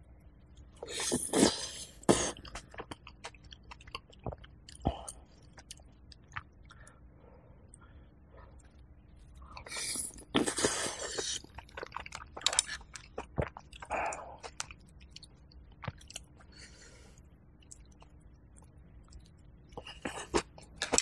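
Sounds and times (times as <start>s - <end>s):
person slurping porridge: 0.8s - 2.6s, 9.7s - 11.5s
chewing with wet mouth clicks: 2.3s - 7.0s, 8.5s - 21.0s.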